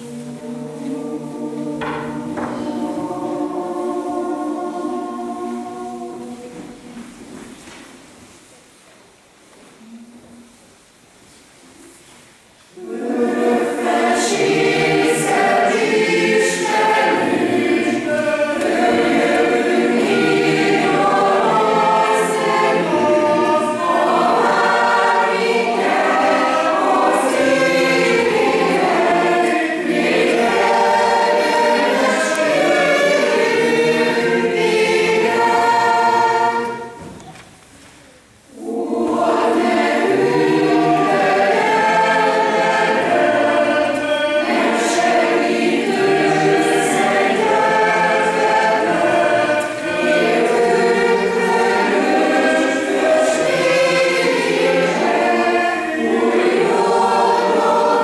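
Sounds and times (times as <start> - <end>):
mixed choir singing: 0.0 - 7.5, 12.7 - 37.2, 38.4 - 58.0.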